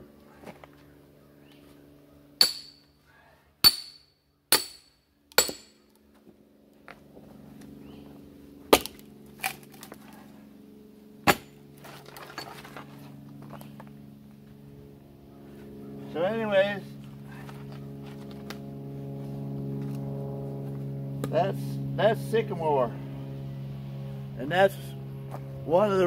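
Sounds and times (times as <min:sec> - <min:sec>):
sledgehammer striking steel wedge: 0:02.4 - 0:02.9, 0:03.6 - 0:05.8, 0:11.2 - 0:11.6.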